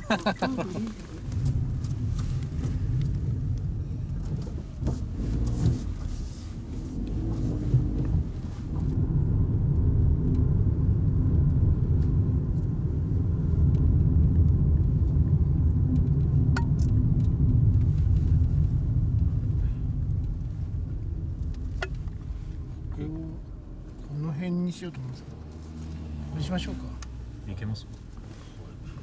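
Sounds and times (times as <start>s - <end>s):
car engine and tyre rumble: 0.0s - 29.0s.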